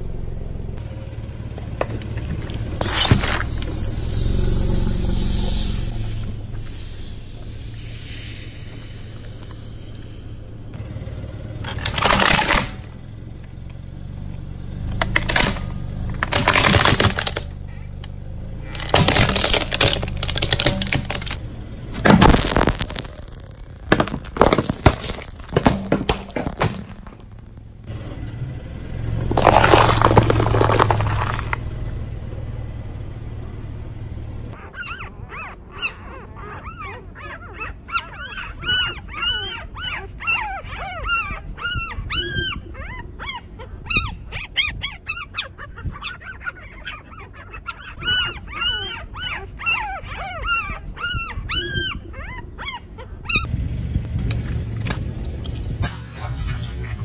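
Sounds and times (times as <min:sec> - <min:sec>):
car engine humming: 0:00.0 - 0:34.6, 0:53.5 - 0:57.0
tyre crushing brittle objects: 0:15.1 - 0:17.5, 0:18.6 - 0:27.7, 0:29.2 - 0:31.7.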